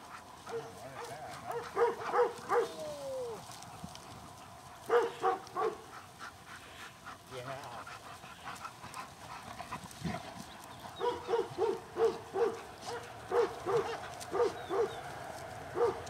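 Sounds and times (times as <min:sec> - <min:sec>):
dog barking: 0:00.4 - 0:02.8, 0:04.8 - 0:05.9, 0:11.0 - 0:15.0, 0:15.8 - 0:16.0.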